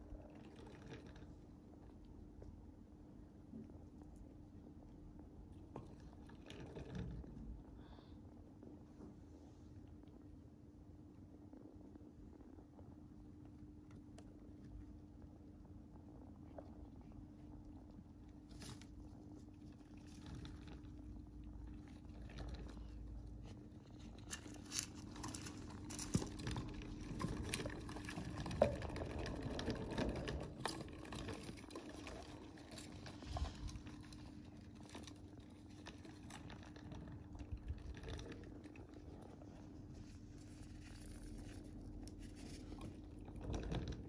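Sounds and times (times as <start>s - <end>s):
steady low hum: 0.0s - 44.0s
hamsters scrabbling in bedding: 15.9s - 44.0s.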